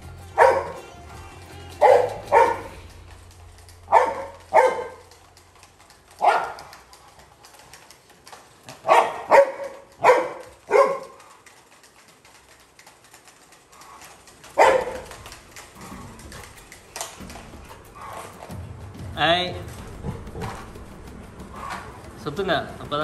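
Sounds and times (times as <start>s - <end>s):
dog barking: 0.4s - 0.9s, 1.8s - 3.0s, 3.8s - 7.1s, 8.7s - 11.4s, 13.8s - 16.6s.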